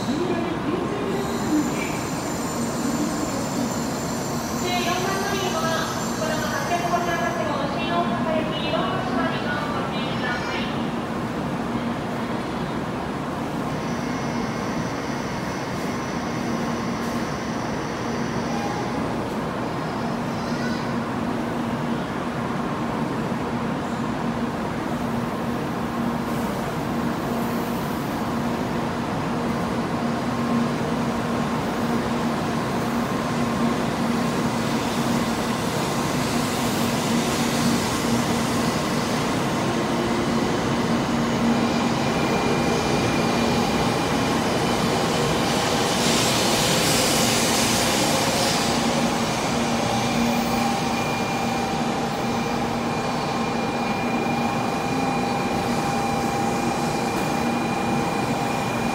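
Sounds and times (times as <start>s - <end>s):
train hum: 0.0s - 58.9s
rush of train cars passing: 25.0s - 58.9s.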